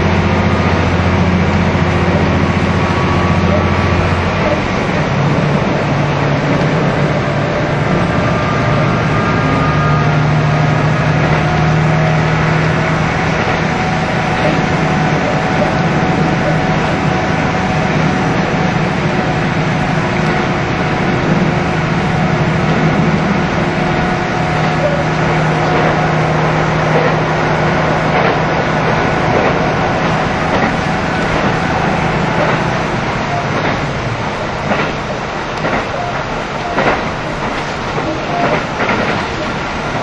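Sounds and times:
diesel engine drone: 0.0s - 40.0s
wheel and rail rumble: 0.0s - 40.0s
wheels clicking over rail joints: 10.7s - 17.0s, 26.9s - 40.0s.

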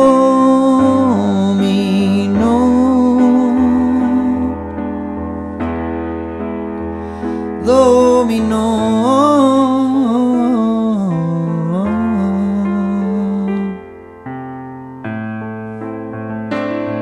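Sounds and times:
man singing: 0.0s - 4.6s, 7.5s - 14.0s
electric piano chords: 0.0s - 17.0s.

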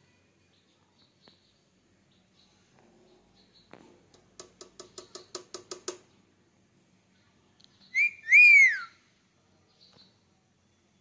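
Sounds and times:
parakeet calling: 7.9s - 9.0s.

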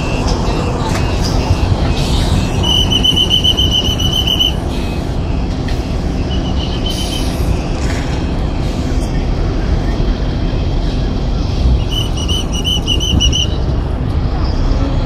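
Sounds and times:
rapidly pulsing electronic beep: 0.0s - 5.0s
bus engine and road rumble: 0.0s - 15.0s.

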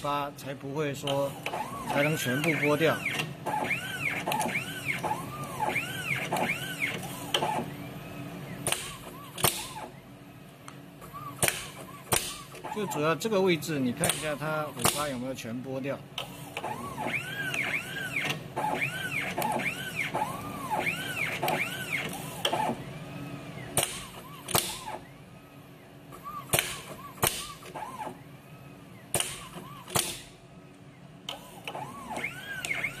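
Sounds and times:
machine motors whining: 0.0s - 33.0s
sharp machine clicks: 1.0s - 7.8s, 8.6s - 10.0s, 11.0s - 15.3s, 16.2s - 22.8s, 23.6s - 25.1s, 26.1s - 28.2s, 29.1s - 30.4s, 31.3s - 33.0s.

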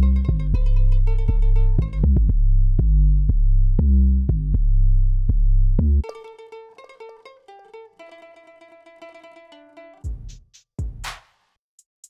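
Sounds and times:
plucked string notes: 0.0s - 2.4s, 6.0s - 10.1s
loud low rhythmic notes: 0.0s - 6.0s.

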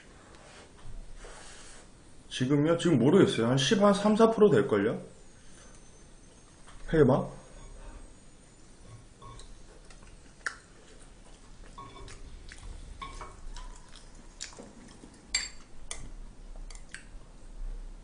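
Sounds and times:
chewing: 9.2s - 17.1s.

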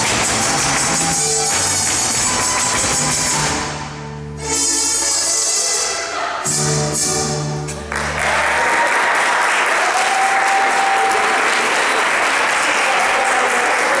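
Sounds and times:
audience applauding: 0.0s - 2.9s, 7.8s - 14.0s
dance music: 0.0s - 8.1s.

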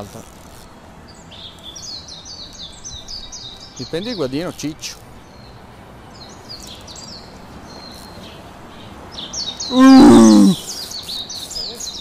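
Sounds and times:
small birds chirping: 0.0s - 12.0s
loud drawn-out vocal cry: 9.7s - 10.6s.

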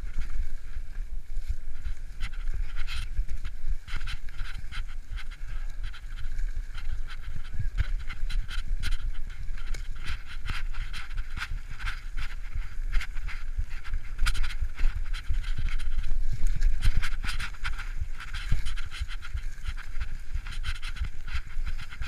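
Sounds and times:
bike rattling over ground: 0.0s - 22.0s
wind rumbling on microphone: 0.0s - 22.0s.

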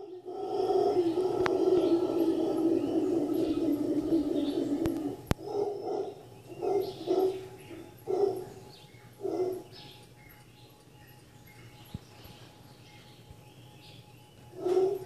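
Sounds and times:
faint bird calls: 0.0s - 10.5s
howler monkeys calling: 0.0s - 15.0s.

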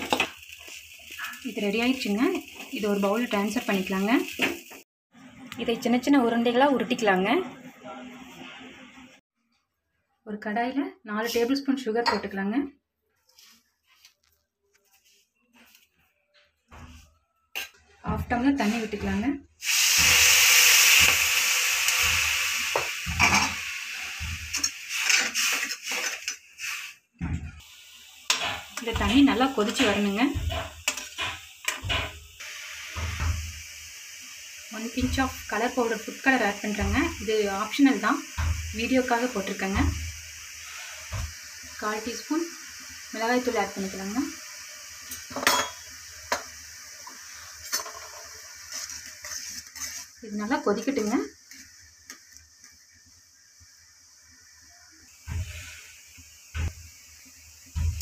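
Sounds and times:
water hissing on hot pan: 0.0s - 4.9s, 18.4s - 58.0s
spoon scraping and clinking pan: 45.3s - 46.4s.

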